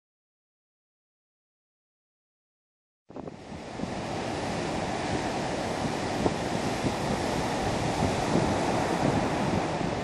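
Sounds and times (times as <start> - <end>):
surf breaking on beach: 3.1 - 10.0
wind buffeting microphone: 3.1 - 10.0.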